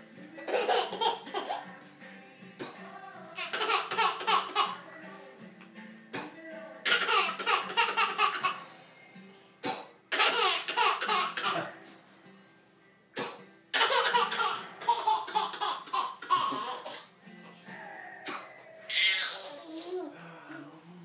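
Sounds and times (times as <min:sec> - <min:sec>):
baby laughing hard: 0:00.5 - 0:01.7, 0:03.4 - 0:04.8, 0:06.8 - 0:08.6, 0:10.1 - 0:11.7, 0:13.8 - 0:17.1, 0:18.9 - 0:20.1.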